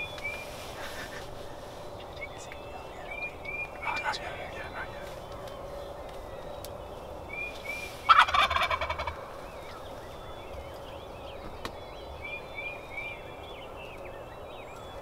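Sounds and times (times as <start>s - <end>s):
songbirds chirping and trilling: 0.0s - 15.0s
turkey gobbling: 8.1s - 9.4s.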